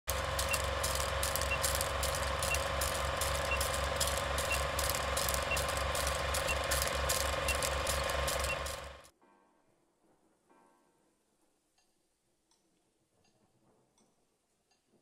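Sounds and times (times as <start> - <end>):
crackling clicks: 0.1 - 9.1
projector whirring clatter: 0.1 - 9.1
short high beeps: 0.4 - 8.9.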